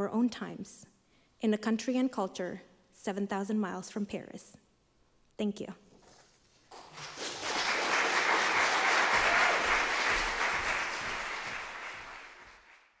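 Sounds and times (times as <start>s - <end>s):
audience applauding: 6.7s - 13.0s.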